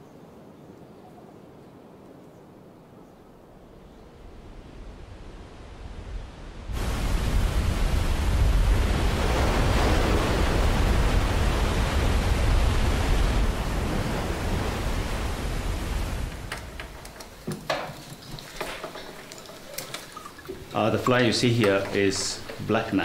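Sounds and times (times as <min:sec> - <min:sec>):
waterfall rushing: 0:06.7 - 0:23.0
light clicks and taps: 0:16.5 - 0:22.7.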